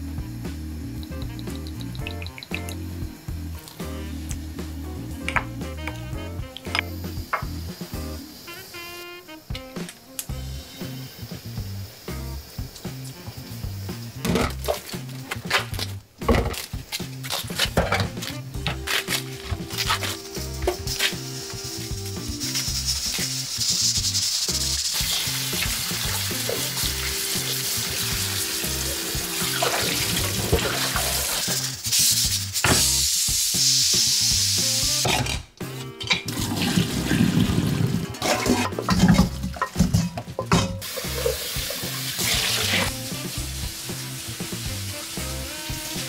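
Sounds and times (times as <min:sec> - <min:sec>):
background music with steady beat: 0:00.0 - 0:46.0
water running from tap into sink: 0:01.0 - 0:02.9, 0:18.8 - 0:35.4, 0:36.1 - 0:46.0.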